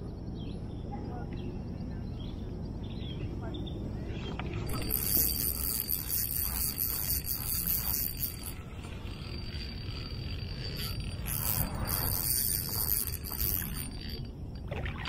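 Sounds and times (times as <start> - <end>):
insects trilling: 4.7 - 14.6.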